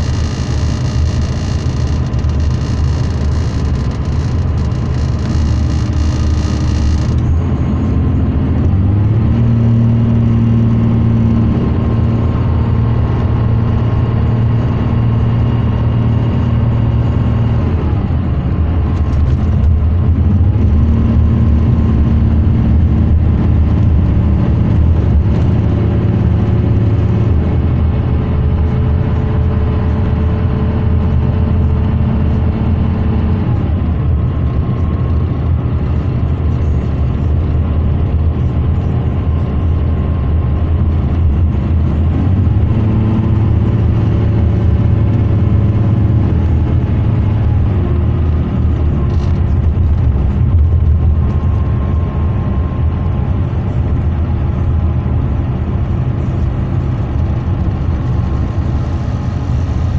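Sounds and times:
diesel coach engine drone: 0.0s - 59.9s
road and tyre noise: 0.0s - 59.9s.

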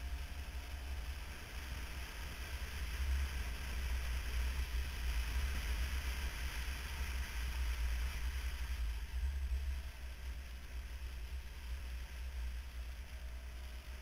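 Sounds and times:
road and engine noise: 0.0s - 14.0s.

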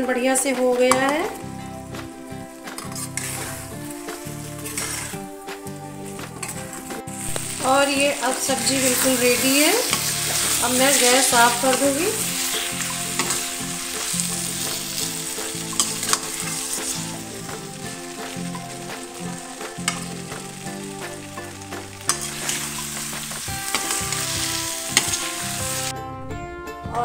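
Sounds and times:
food sizzling in a pan: 0.0s - 25.9s
metal spatula scraping pan: 2.7s - 5.4s, 6.0s - 20.6s, 22.0s - 25.9s
spatula clinking on steel: 4.6s - 5.2s, 8.3s - 14.8s, 15.4s - 17.0s, 19.6s - 20.2s, 22.1s - 25.3s.

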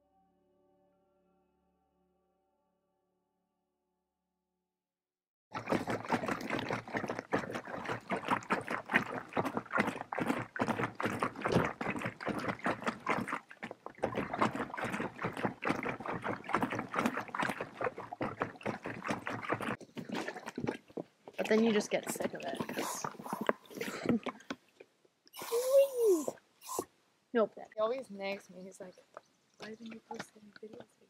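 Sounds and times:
lake water lapping and splashing: 5.5s - 24.6s, 27.8s - 31.0s.

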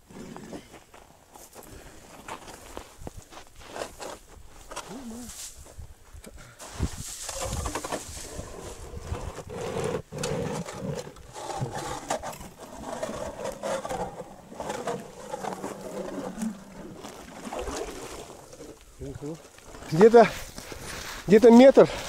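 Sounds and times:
ice auger grinding through ice: 7.2s - 18.7s.

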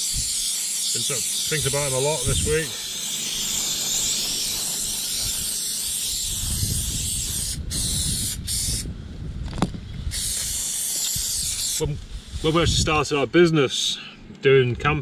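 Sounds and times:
aerosol can hissing: 0.0s - 8.9s, 10.1s - 12.8s.

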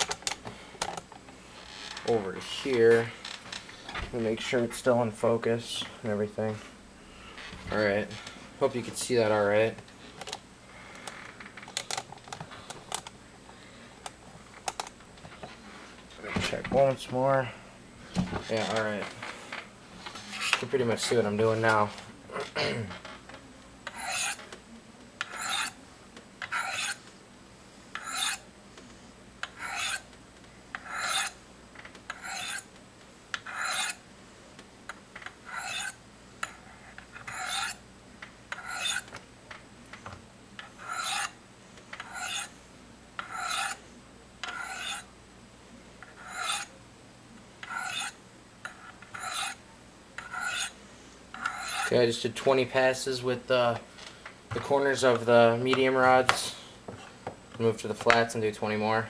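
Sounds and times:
knife scraping on ceramic rods: 20.2s - 20.6s, 23.9s - 24.4s, 25.2s - 25.8s, 26.4s - 27.0s, 28.0s - 28.4s, 29.4s - 30.1s, 30.8s - 31.4s, 32.1s - 32.7s, 33.4s - 34.0s, 35.4s - 37.8s, 38.5s - 39.1s, 40.7s - 41.4s, 42.0s - 42.5s, 43.2s - 43.8s, 44.4s - 45.1s, 46.0s - 46.7s, 47.6s - 49.6s, 50.2s - 50.8s, 51.4s - 52.0s.

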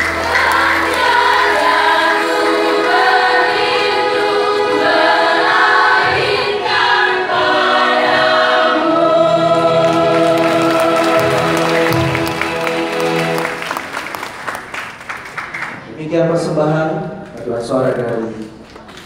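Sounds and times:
choir singing: 0.0s - 14.0s.

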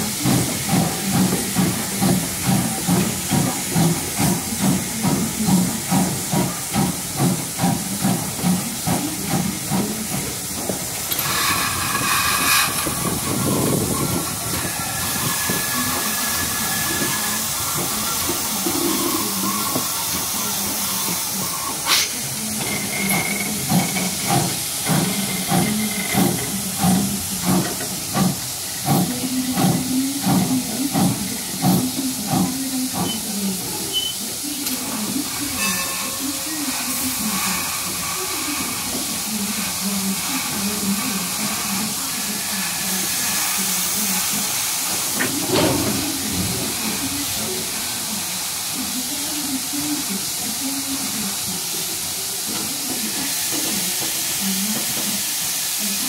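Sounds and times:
rhythmic locomotive beats: 0.0s - 56.0s
steam hissing from locomotive: 0.0s - 56.0s.

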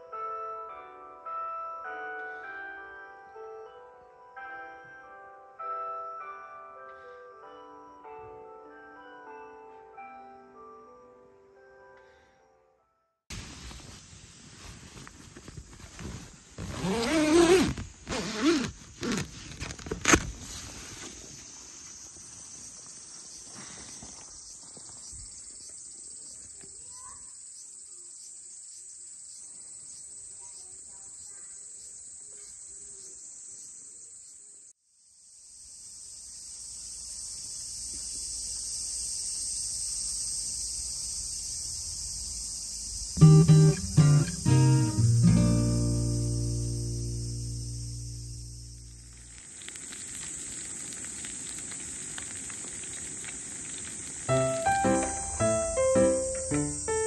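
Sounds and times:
insect chorus: 13.4s - 57.0s
tent zipper rasping: 15.6s - 20.9s.

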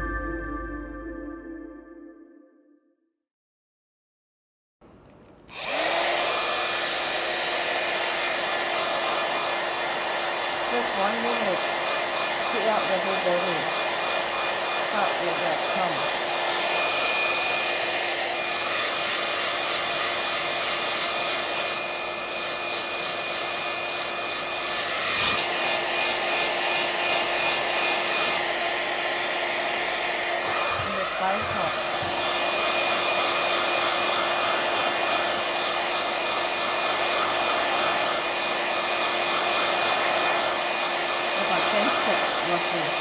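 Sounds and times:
handheld device whirring: 5.1s - 43.0s.

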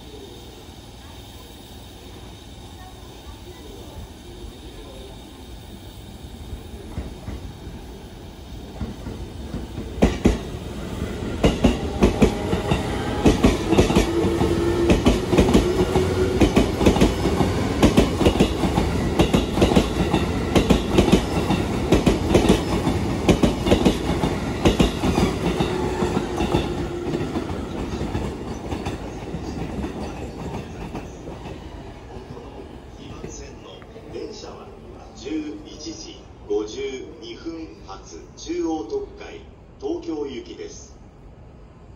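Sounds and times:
train hum: 0.0s - 41.9s
train wheels clacking: 8.6s - 32.4s.

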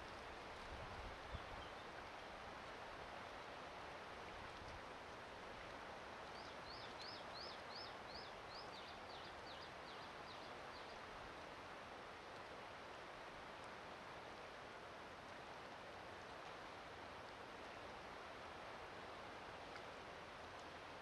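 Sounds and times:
faint wind hiss: 0.0s - 21.0s
small songbird singing: 6.3s - 11.0s.

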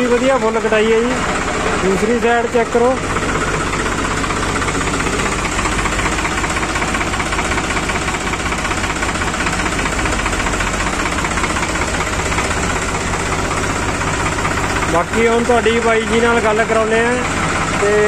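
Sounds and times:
tractor diesel engine idling: 0.0s - 18.0s.

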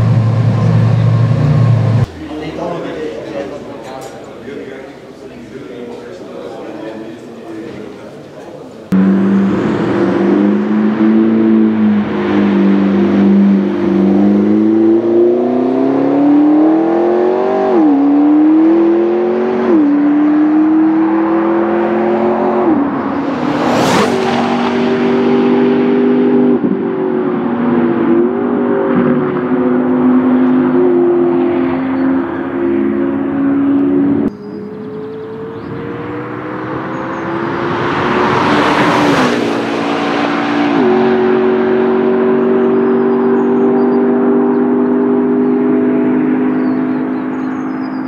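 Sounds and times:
sports car accelerating hard: 8.9s - 48.0s
car passing by: 20.2s - 26.5s, 35.2s - 42.4s.

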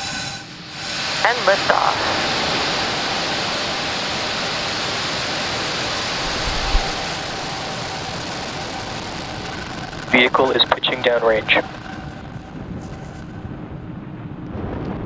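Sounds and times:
rocket engines roaring: 0.0s - 15.0s.

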